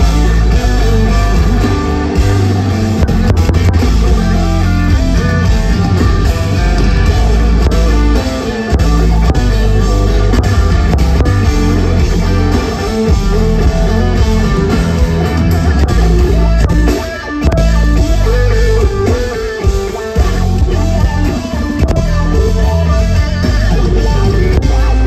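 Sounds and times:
bass and drums: 0:00.0 - 0:25.0
electric guitar lines: 0:00.0 - 0:25.0.

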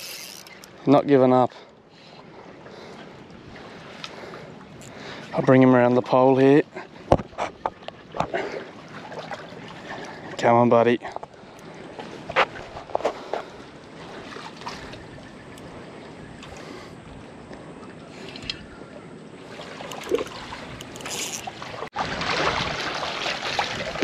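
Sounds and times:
wind noise: 0:16.4 - 0:24.0
water washing: 0:19.4 - 0:24.0.

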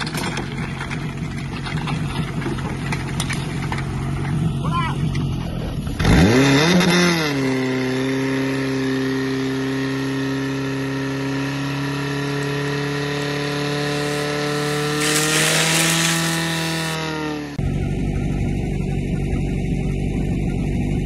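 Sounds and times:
petrol engine revving: 0:00.0 - 0:17.6
hissing water spray: 0:13.2 - 0:17.0.

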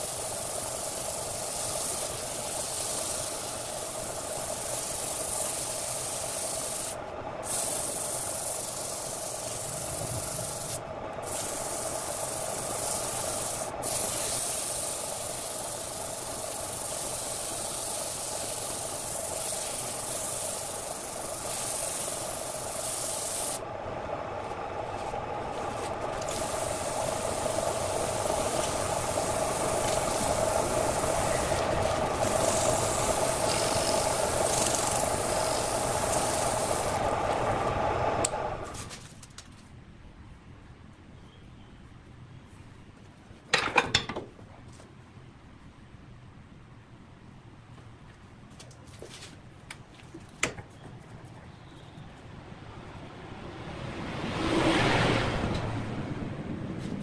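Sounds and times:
sandpaper rubbing hiss: 0:00.0 - 0:23.6, 0:24.9 - 0:37.9
lathe motor hum: 0:15.4 - 0:38.8.

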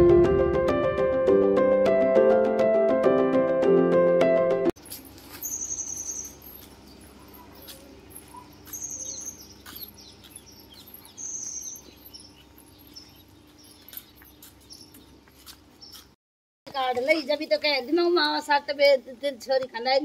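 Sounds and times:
background music: 0:00.0 - 0:04.7
bird trilled call: 0:05.4 - 0:15.0.

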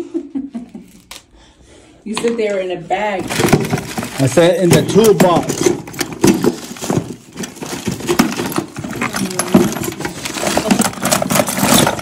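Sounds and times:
pipe fittings clattering in toolbox: 0:03.2 - 0:12.0.

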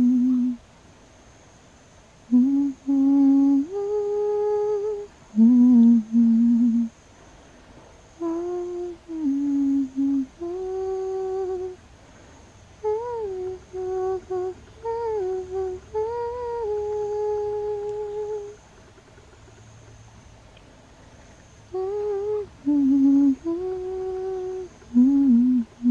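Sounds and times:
person humming a lullaby: 0:00.0 - 0:00.6, 0:02.3 - 0:07.0, 0:08.1 - 0:11.9, 0:12.8 - 0:18.6, 0:21.7 - 0:25.9.

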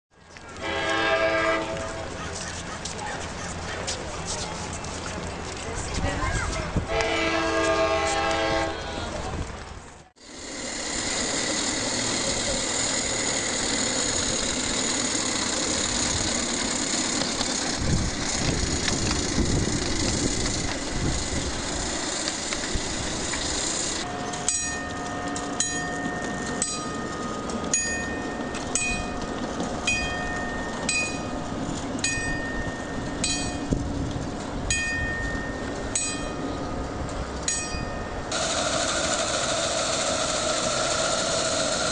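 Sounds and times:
wheels clicking over rail joints: 0:00.2 - 0:41.9
miniature train hiss: 0:10.2 - 0:24.0, 0:38.3 - 0:41.9.

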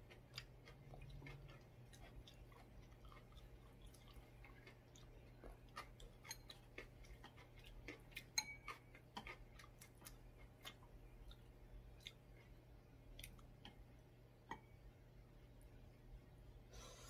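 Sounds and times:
soft chewing: 0:00.0 - 0:17.0
chopsticks tapping ceramic bowls: 0:08.4 - 0:09.4.

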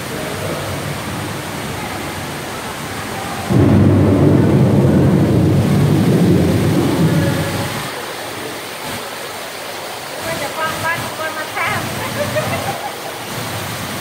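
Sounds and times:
rushing water: 0:00.0 - 0:14.0
deep thunder rumble: 0:03.4 - 0:08.8.

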